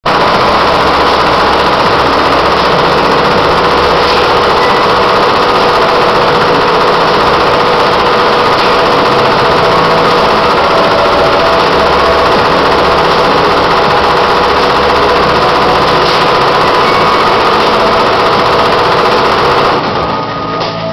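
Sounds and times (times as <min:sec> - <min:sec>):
embroidery machine stitching: 0:00.0 - 0:20.4.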